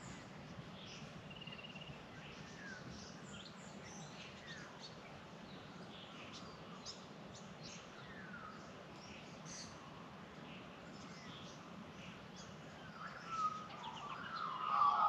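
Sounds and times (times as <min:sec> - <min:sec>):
birds chirping and whistling: 0:13.0 - 0:15.0.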